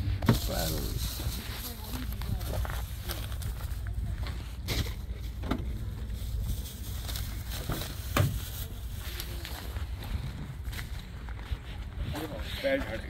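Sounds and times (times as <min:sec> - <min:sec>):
footsteps crunching on gravel: 0:00.0 - 0:05.1, 0:08.8 - 0:13.0
wind rumble on microphone: 0:09.6 - 0:12.5.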